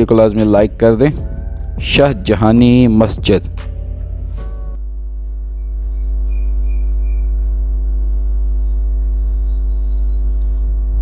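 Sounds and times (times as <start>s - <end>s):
sustained chord: 0.0s - 5.4s
loud low hum: 0.0s - 11.0s.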